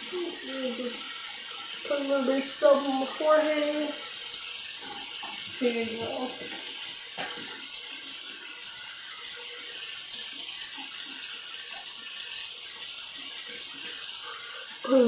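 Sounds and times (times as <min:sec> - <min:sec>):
tap running into sink: 0:04.7 - 0:08.2.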